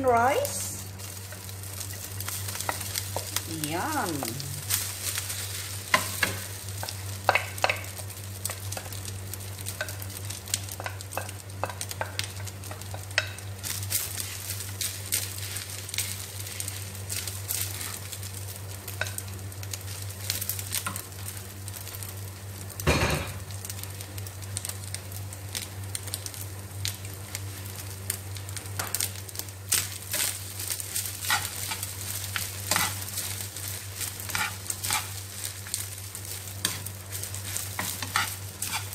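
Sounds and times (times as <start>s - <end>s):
faint sizzle: 0.0s - 38.9s
wooden spatula scraping a pan: 36.7s - 38.9s.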